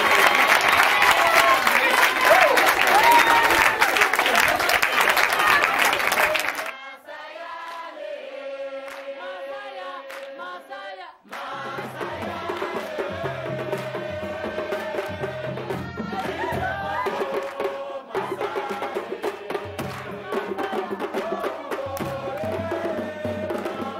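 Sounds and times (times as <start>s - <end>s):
voices chanting: 0.0s - 23.9s.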